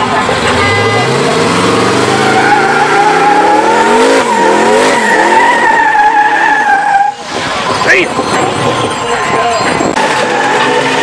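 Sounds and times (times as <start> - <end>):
car engine revving hard: 0.0 - 6.6, 9.9 - 11.0
tires squealing: 0.0 - 11.0.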